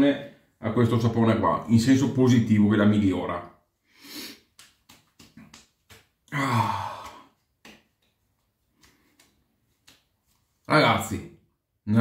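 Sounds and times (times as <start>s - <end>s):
man sighing: 6.3s - 7.4s.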